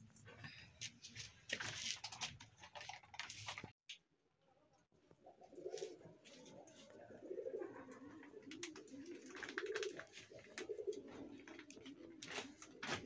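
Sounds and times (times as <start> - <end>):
pigeons cooing: 5.2 - 13.0.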